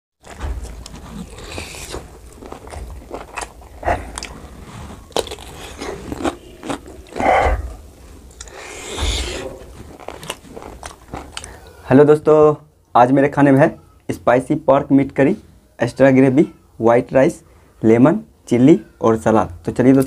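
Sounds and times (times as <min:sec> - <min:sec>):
crunchy bites: 0:00.2 - 0:11.7
person chewing food: 0:00.2 - 0:11.8
wet mouth clicks: 0:05.2 - 0:11.6.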